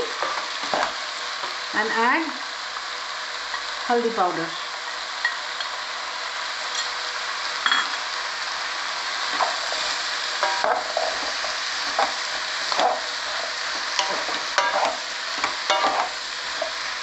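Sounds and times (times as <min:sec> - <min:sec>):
vegetables sizzling in hot oil: 0:00.0 - 0:17.0
wooden spatula scraping a pan: 0:09.3 - 0:16.8.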